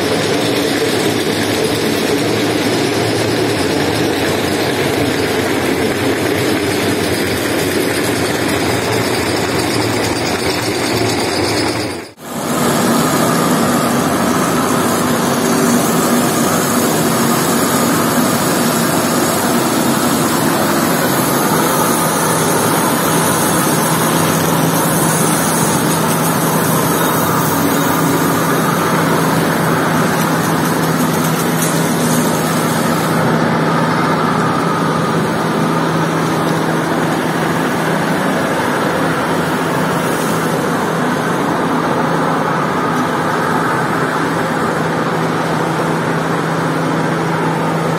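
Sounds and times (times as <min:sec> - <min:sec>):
hose jet spraying water: 0:12.2 - 0:45.3.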